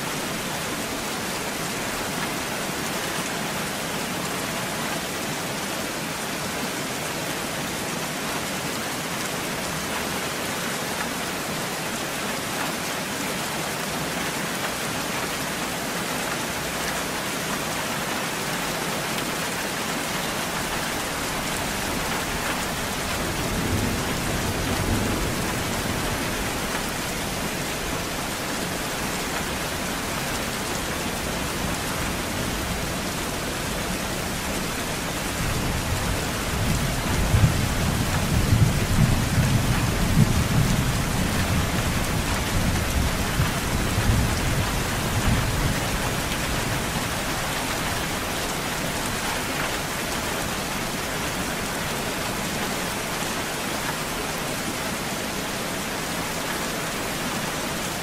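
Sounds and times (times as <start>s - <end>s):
steady rain falling: 0.0s - 58.0s
rolling thunder: 21.9s - 27.4s.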